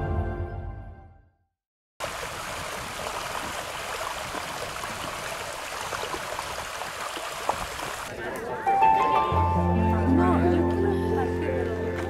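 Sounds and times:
stream running over stones: 0:02.0 - 0:08.2.

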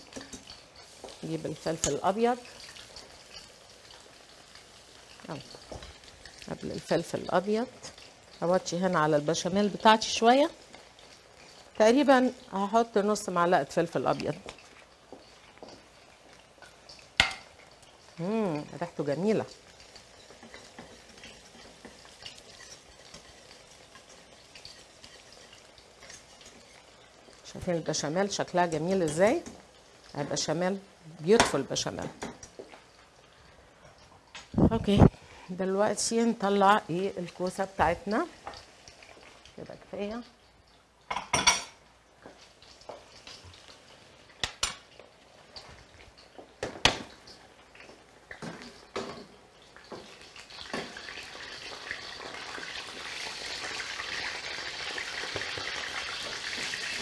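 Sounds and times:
vegetables sizzling in oil: 0:00.0 - 0:57.0
whisk scraping a saucepan: 0:21.6 - 0:26.8.

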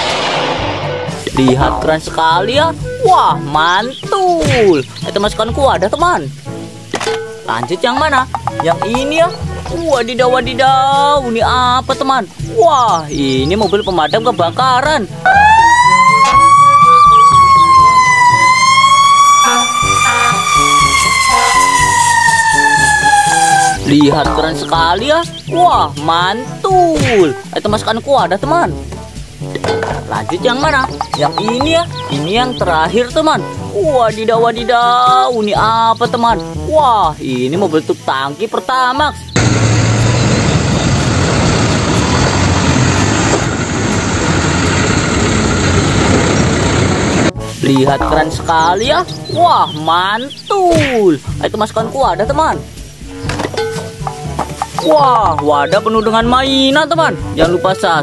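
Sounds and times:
fire truck siren wailing: 0:15.2 - 0:23.9, 0:39.4 - 0:47.3
diesel truck engine running: 0:39.4 - 0:47.4.

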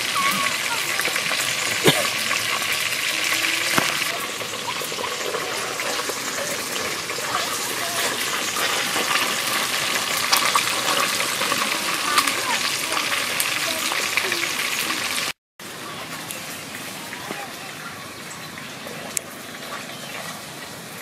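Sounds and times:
pot sizzling hiss: 0:00.0 - 0:15.4.

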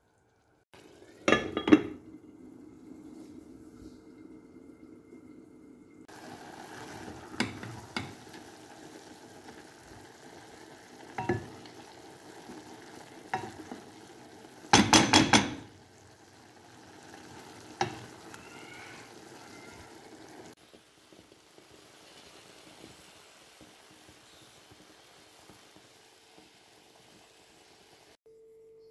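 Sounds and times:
low sizzle: 0:00.0 - 0:28.2
spoon knocking against pot: 0:01.2 - 0:02.0, 0:07.4 - 0:08.2, 0:11.2 - 0:11.6, 0:14.7 - 0:15.7, 0:17.8 - 0:18.2.

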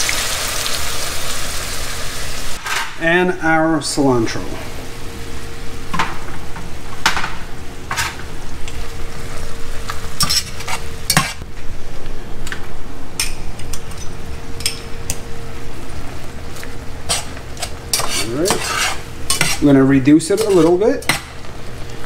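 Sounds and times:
sauce sizzling in a pan: 0:00.0 - 0:02.6, 0:14.2 - 0:22.0
faint steady hum: 0:00.4 - 0:22.0.

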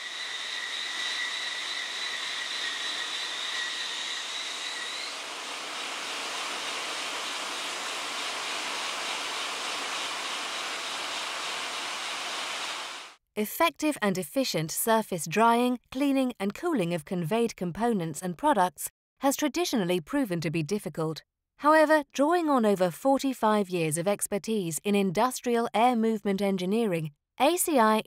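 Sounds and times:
air knife rushing hiss: 0:00.0 - 0:13.2.

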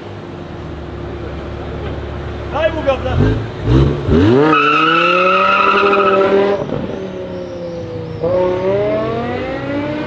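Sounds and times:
car engine revving hard: 0:03.0 - 0:06.9, 0:08.2 - 0:10.0.

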